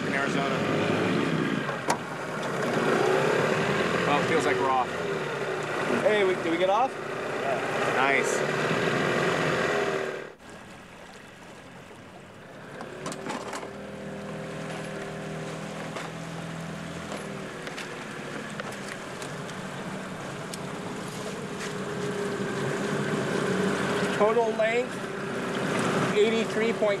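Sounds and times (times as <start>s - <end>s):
outboard motor running: 0.0s - 27.0s
water noise: 0.0s - 27.0s.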